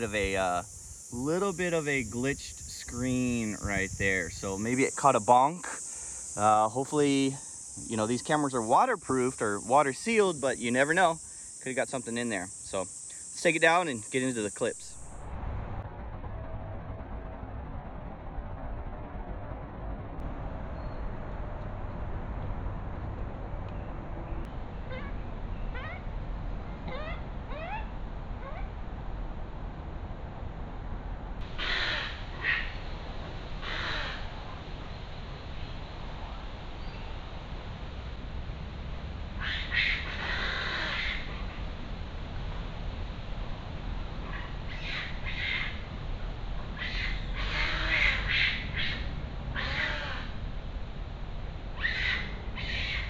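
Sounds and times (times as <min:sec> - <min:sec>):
low background hiss: 0:00.0 - 0:15.8, 0:20.4 - 0:53.0
macaques giving coo calls: 0:26.9 - 0:28.7
crow cawing: 0:31.6 - 0:32.8, 0:33.6 - 0:34.3, 0:39.4 - 0:41.3, 0:46.8 - 0:50.4.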